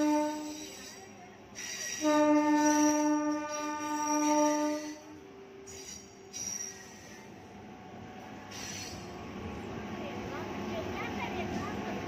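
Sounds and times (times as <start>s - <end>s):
locomotive air horn blast: 0.0s - 0.6s, 2.0s - 5.2s.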